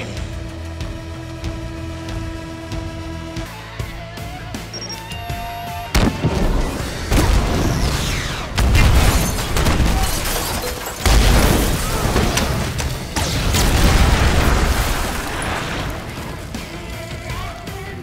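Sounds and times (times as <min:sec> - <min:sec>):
heavy explosions with rumble: 0:06.0 - 0:10.2, 0:11.0 - 0:16.6.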